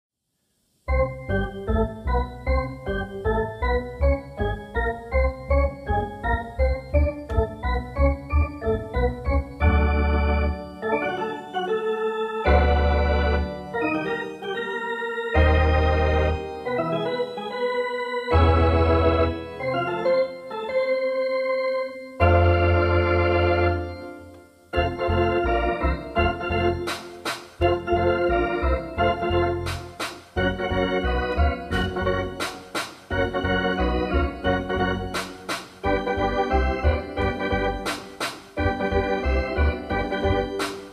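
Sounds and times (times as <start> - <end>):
organ-like keyboard chords: 0.8 - 40.9
percussive hits in steady beat: 26.8 - 27.6, 29.6 - 30.4, 31.3 - 33.1, 35.1 - 35.9, 37.8 - 38.6, 40.6 - 40.9.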